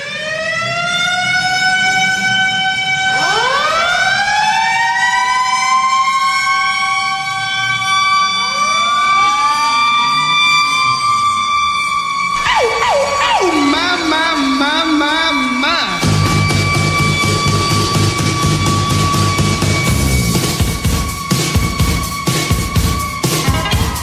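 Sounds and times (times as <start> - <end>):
ice hockey goal horn wailing: 11.7 - 24.0
sound with quickly bending pitches: 12.4 - 24.0.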